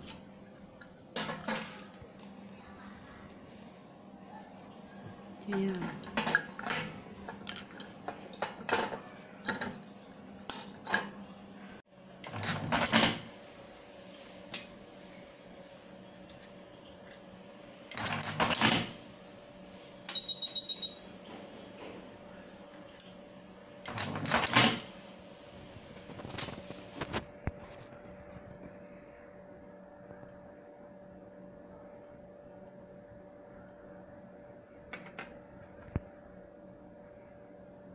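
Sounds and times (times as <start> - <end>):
steady machine hum: 0.0 - 37.9
quick beeps: 20.1 - 21.0.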